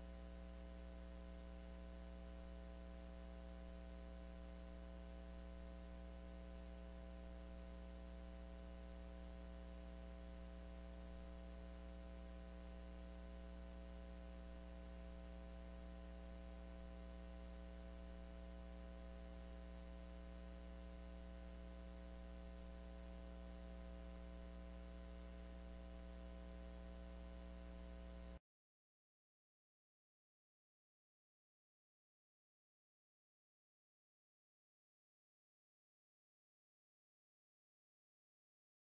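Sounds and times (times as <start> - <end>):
steady low tonal hum: 0.0 - 28.4.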